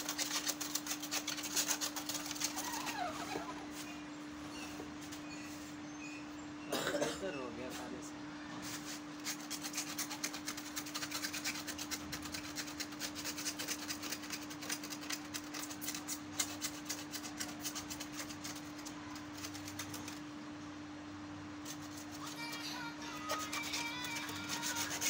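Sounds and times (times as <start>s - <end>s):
scrubbing on plastic grille: 0.0s - 3.6s, 8.6s - 20.3s, 21.6s - 25.0s
faint hum: 0.0s - 25.0s.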